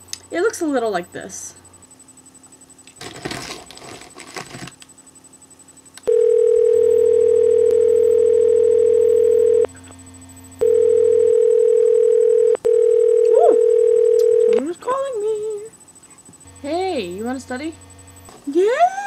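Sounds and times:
snack bag crinkling: 3.0s - 4.8s
electronic ringtone: 6.1s - 9.7s, 10.6s - 14.6s.

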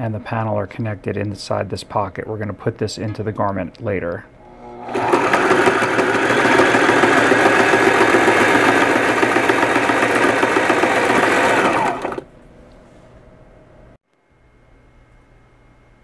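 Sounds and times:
sewing machine running: 4.4s - 12.3s.

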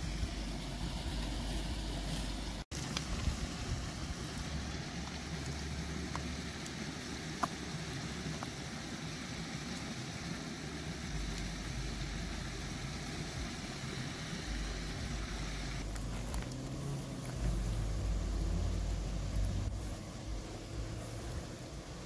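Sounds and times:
steady rushing hiss: 0.0s - 22.0s.

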